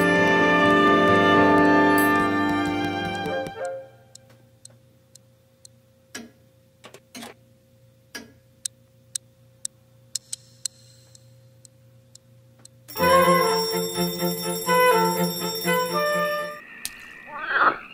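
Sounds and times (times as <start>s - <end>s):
alarm clock ticking: 1.5s - 4.2s, 12.9s - 16.6s.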